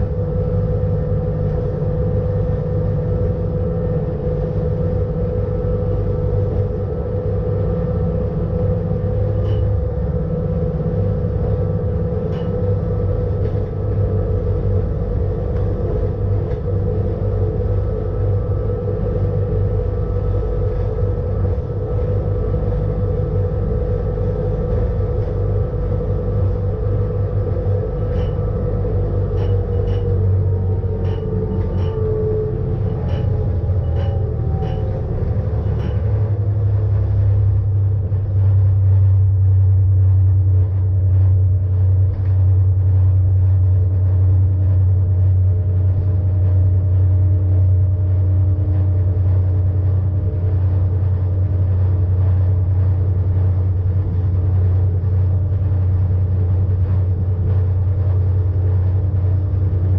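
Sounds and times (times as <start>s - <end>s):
electric railcar humming and whining: 0.0s - 59.9s.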